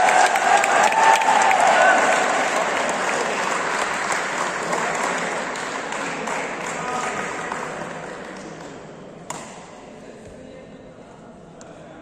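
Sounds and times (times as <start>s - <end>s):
spectators applauding: 0.0s - 8.4s.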